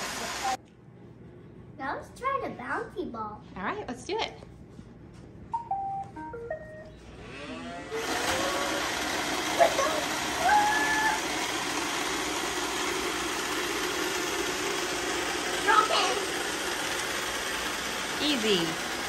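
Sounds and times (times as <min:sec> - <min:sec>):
vacuum motor and brushes running: 0:00.0 - 0:00.6, 0:07.0 - 0:19.0.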